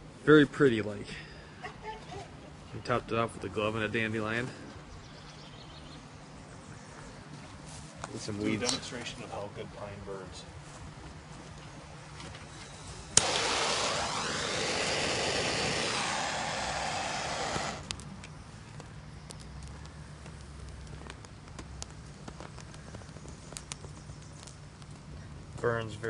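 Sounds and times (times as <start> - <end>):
wood crackling in fire: 13.1 - 26.0
loud gas hiss: 13.2 - 17.9.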